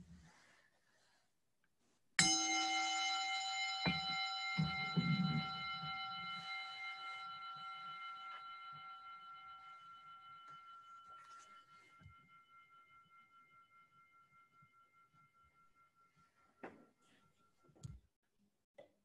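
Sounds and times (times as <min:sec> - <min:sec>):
small bell ringing: 0:02.2 - 0:16.4.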